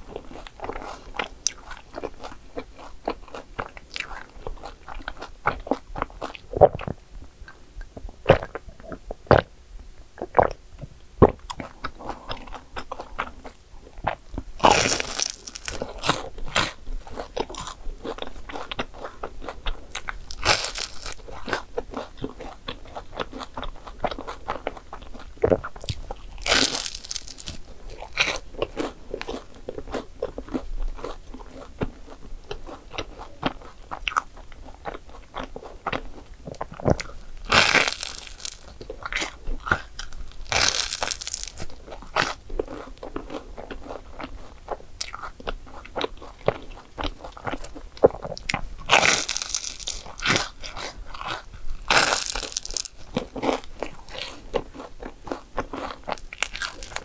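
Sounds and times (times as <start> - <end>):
person chewing crisp food: 0.0 - 9.5, 10.2 - 57.0
crunching bites: 14.1 - 57.0.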